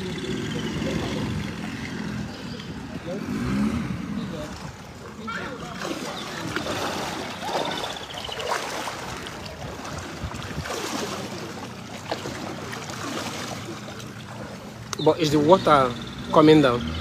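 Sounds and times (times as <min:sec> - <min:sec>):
faint distant voices: 0:00.0 - 0:17.0
water washing past boat: 0:00.0 - 0:17.0
wind on microphone: 0:09.0 - 0:11.4.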